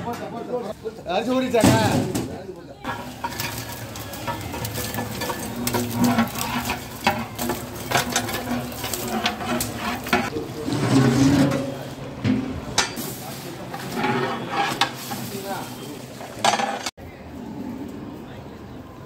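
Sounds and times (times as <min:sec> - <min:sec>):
chicken sizzling in hot oil: 0:02.9 - 0:10.4, 0:14.7 - 0:16.9
metal ladle scraping a pot: 0:02.9 - 0:16.9.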